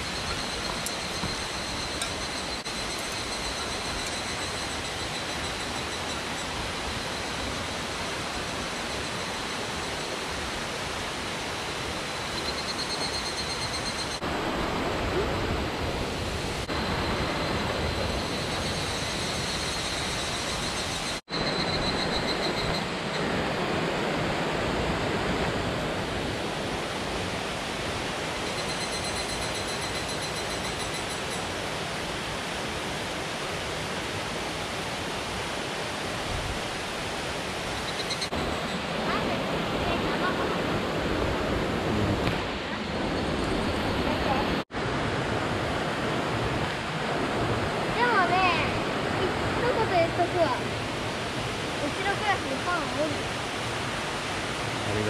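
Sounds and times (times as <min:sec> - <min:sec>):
cicadas trilling: 0:00.0 - 0:14.3, 0:16.3 - 0:23.4, 0:28.2 - 0:31.8, 0:37.2 - 0:39.2
mountain stream rushing: 0:00.0 - 0:55.0.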